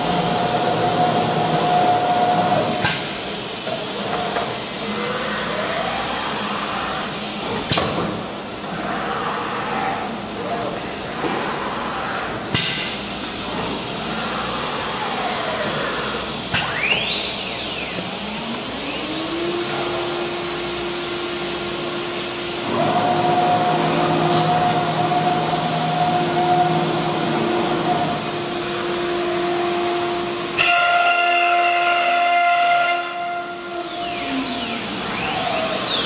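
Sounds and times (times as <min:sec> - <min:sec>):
spindle motor whine: 0:00.0 - 0:10.8, 0:13.1 - 0:36.0.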